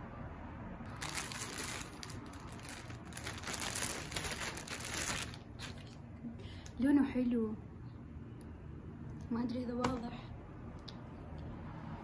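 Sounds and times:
plastic bag crinkling: 0:00.9 - 0:06.0.

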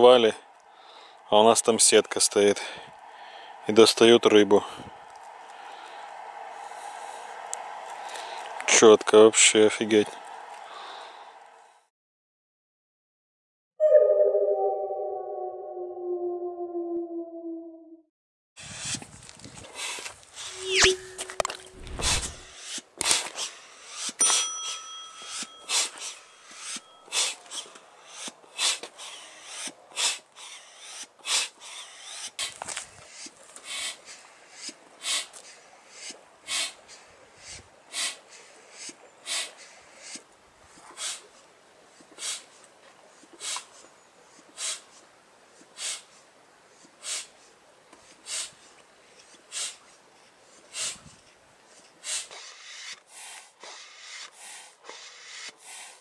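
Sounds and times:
thin high tone: 0:13.8 - 0:18.0, 0:20.5 - 0:22.4, 0:24.2 - 0:27.1
foot pump puffs of air: 0:21.8 - 0:24.2.

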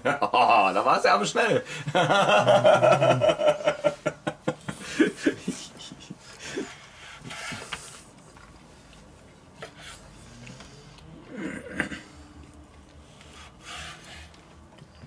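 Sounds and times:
person laughing and snickering: 0:01.8 - 0:06.8.

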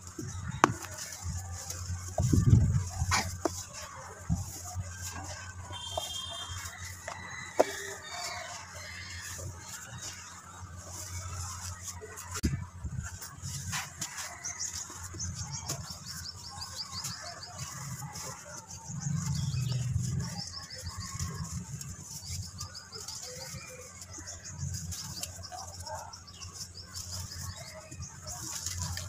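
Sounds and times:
small birds chirping: 0:00.0 - 0:12.6, 0:13.2 - 0:29.0.

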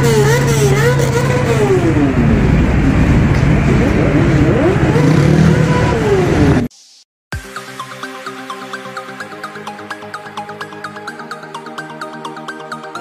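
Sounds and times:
street traffic: 0:00.0 - 0:06.7.

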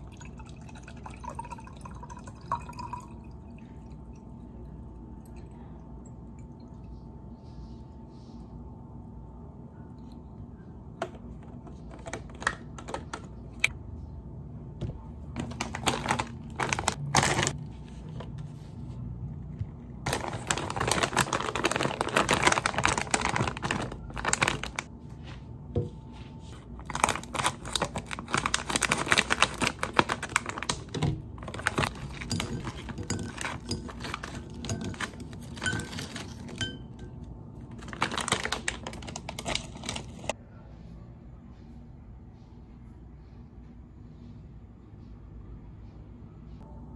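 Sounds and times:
plastic snack bag crinkling: 0:15.4 - 0:17.6, 0:20.0 - 0:24.9, 0:26.8 - 0:36.6, 0:37.7 - 0:40.3.

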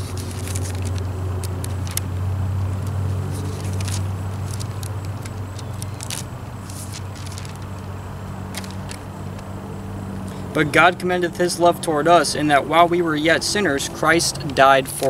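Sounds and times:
paper pages rustling: 0:00.0 - 0:09.5
low motor hum: 0:00.0 - 0:15.0.

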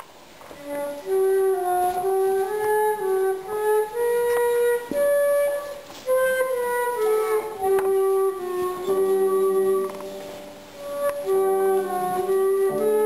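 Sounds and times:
solo wind instrument melody: 0:00.0 - 0:13.0.

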